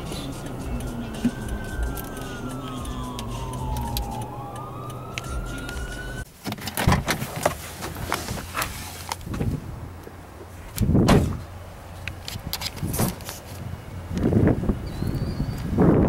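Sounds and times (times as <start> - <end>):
car cabin hum: 0.0 - 6.2
siren wailing: 0.0 - 6.3.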